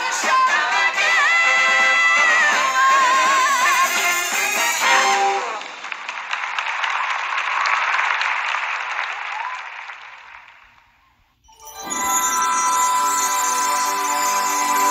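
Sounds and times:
music: 0.0 - 5.6, 11.5 - 14.9
audience applauding: 4.8 - 11.1.

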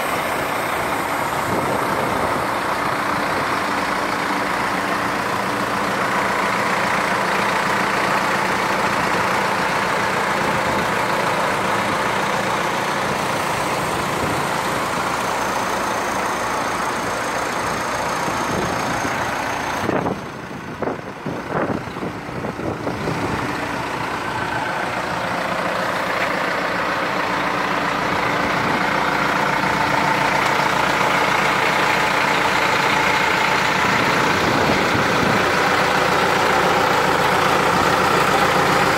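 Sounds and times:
diesel engine idling: 0.0 - 38.9.

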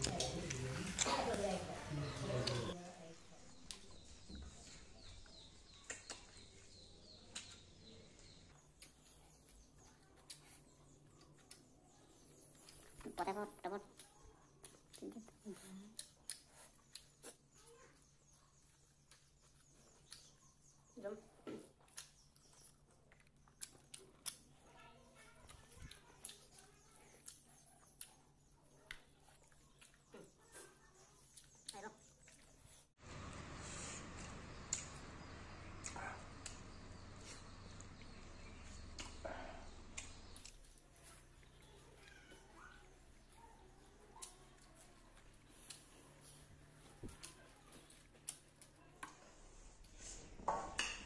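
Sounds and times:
chewing: 7.3 - 50.2
person chewing and lip-smacking: 13.8 - 17.6, 21.8 - 24.7
low steady hum: 33.0 - 41.7.

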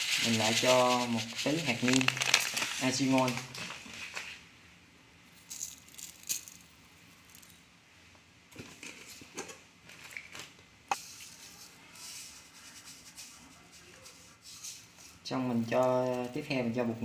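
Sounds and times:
seasoning granules pattering: 0.0 - 3.5.

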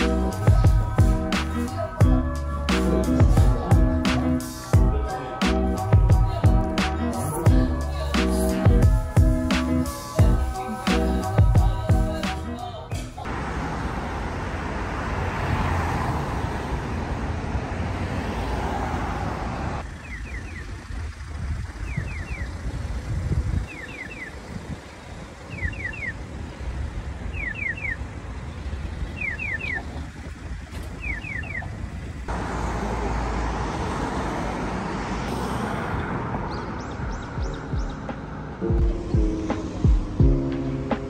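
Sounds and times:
road traffic passing: 0.0 - 41.0
pedestrian crossing signal chirps: 19.8 - 22.7, 23.5 - 32.3.

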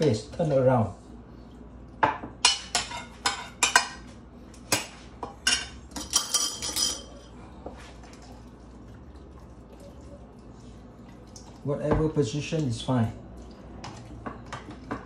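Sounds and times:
metal spoon clinking on glass dish: 5.5 - 7.2.

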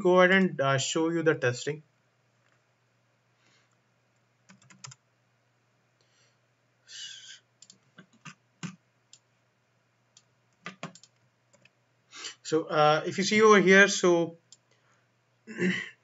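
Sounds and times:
keyboard and mouse clicks: 4.5 - 5.0, 7.6 - 9.3, 10.2 - 11.8.

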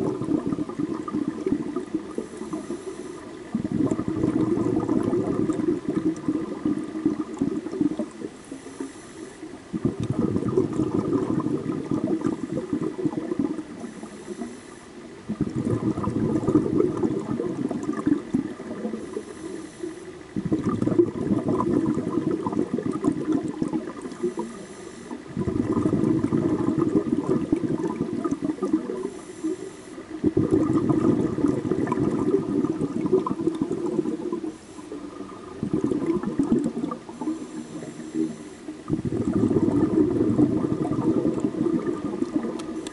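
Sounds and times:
bubbling underwater exhalations: 0.0 - 8.4, 9.7 - 14.0, 15.2 - 19.2, 20.3 - 24.6, 25.2 - 29.2, 30.1 - 42.9
regulator inhale hiss: 2.1 - 3.4, 8.3 - 9.6, 13.7 - 15.1, 18.8 - 20.3, 24.0 - 25.4, 29.0 - 30.2, 34.4 - 35.2, 37.1 - 38.9.

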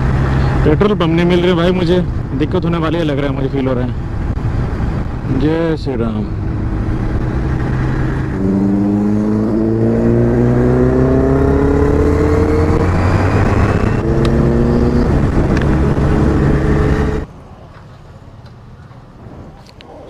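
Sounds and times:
motorcycle engine accelerating: 6.3 - 17.3.

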